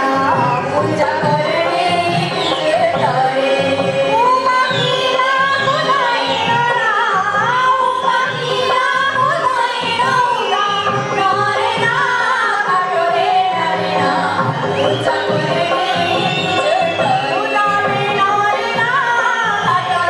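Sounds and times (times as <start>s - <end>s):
harmonium: 0.0s - 20.0s
women singing: 0.0s - 20.0s.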